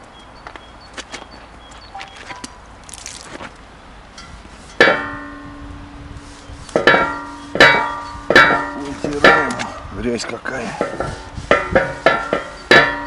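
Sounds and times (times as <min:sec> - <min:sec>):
ringing metallic knocks: 0:04.2 - 0:06.0, 0:06.7 - 0:13.0
cloth wiping metal pan: 0:06.2 - 0:13.0.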